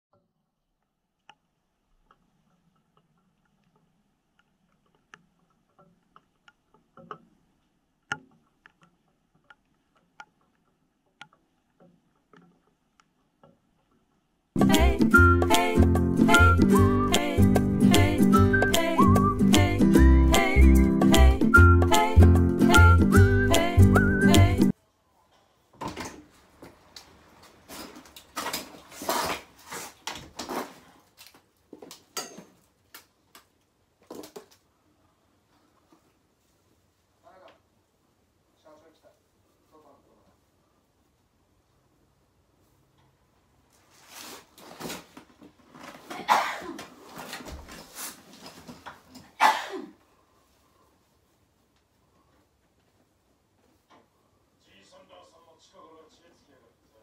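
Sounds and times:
small clicks and knocks: 0.1s - 14.4s
rustling and shuffling: 25.1s - 33.3s, 33.9s - 49.4s, 50.0s - 54.4s.

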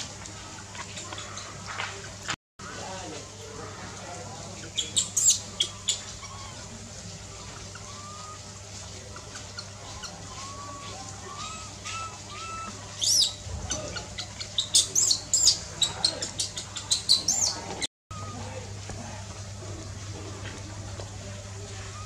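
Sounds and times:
baby monkeys squealing: 4.6s - 18.7s.

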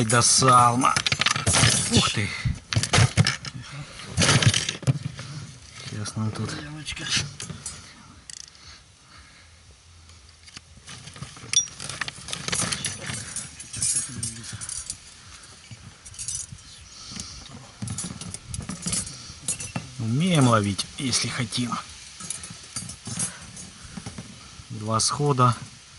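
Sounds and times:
metal fishing tackle jangling: 11.5s - 16.7s, 17.8s - 20.5s, 22.0s - 23.8s.

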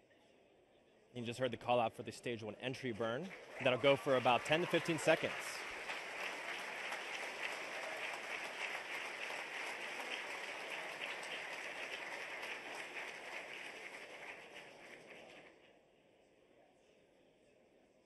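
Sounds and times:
crowd applause: 2.7s - 15.6s.

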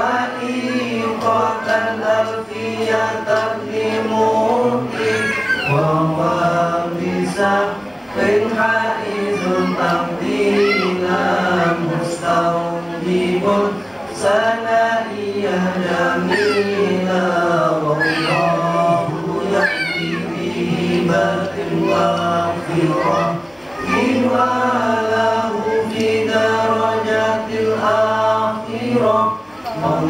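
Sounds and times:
group chanting in unison: 0.0s - 30.0s.

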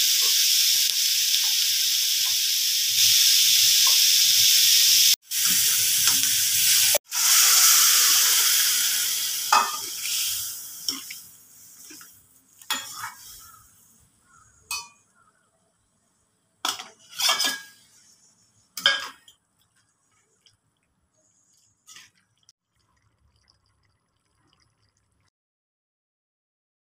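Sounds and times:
metal spoon clinking against pan: 12.7s - 13.4s, 14.7s - 15.1s, 16.7s - 17.8s.

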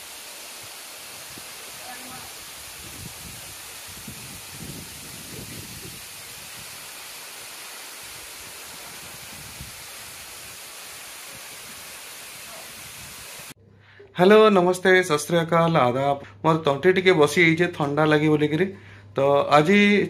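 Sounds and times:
waterfall rushing: 0.0s - 13.6s.

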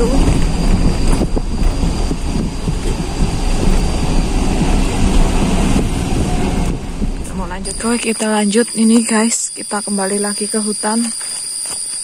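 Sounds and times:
car engine and tyres rumbling: 0.0s - 8.0s
wind on microphone: 0.0s - 9.2s.

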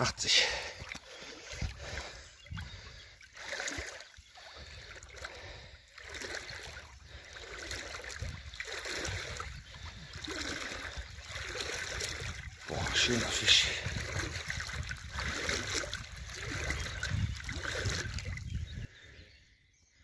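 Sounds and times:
water sloshing and splashing: 0.0s - 18.9s
wind rumble on microphone: 1.4s - 3.1s, 7.9s - 19.4s.

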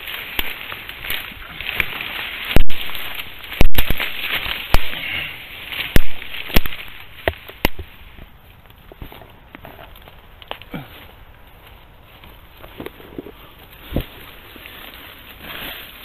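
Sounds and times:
stems snapping sharply: 0.0s - 8.0s
bamboo and dead leaves rustling: 0.0s - 16.0s.

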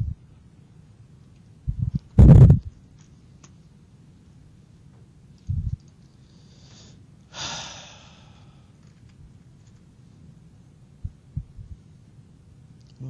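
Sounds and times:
person sighing: 7.3s - 8.7s.

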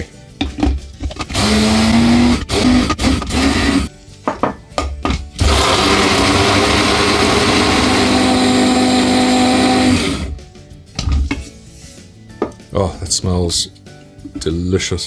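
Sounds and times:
electric spice grinder motor: 1.2s - 3.9s, 5.4s - 10.4s.

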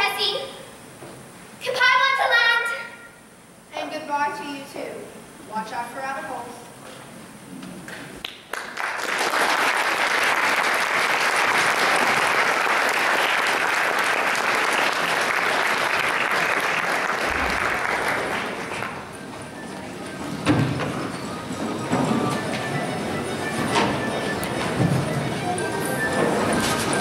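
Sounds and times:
audience applauding: 7.8s - 20.1s.

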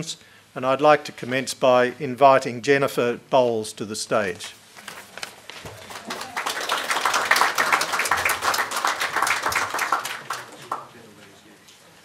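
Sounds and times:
audience applauding: 5.5s - 11.1s.

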